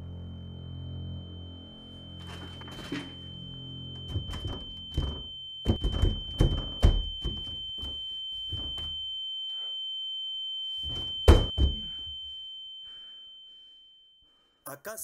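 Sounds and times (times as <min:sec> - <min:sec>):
steady high-pitched tone: 0:00.0 - 0:14.6
heavy thuds on door: 0:04.1 - 0:07.6.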